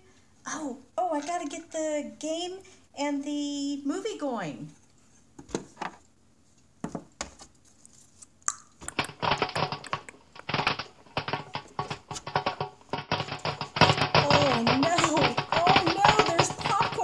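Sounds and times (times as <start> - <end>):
popcorn popping in a pot: 8.5 - 17.0.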